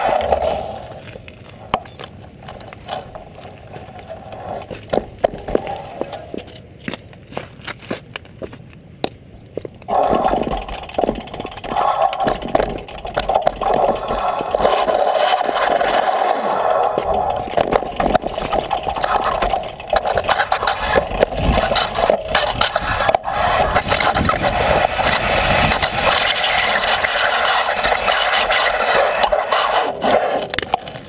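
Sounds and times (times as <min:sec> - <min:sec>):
tyres crunching over stones: 0:00.0 - 0:23.1
bicycle rattling: 0:09.9 - 0:31.0.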